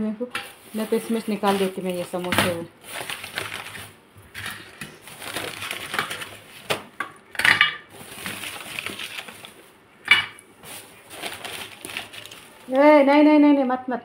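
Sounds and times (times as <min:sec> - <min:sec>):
crinkling and rustling: 0:00.3 - 0:13.3
dishes clinking and knocking: 0:07.0 - 0:07.9, 0:10.0 - 0:10.4.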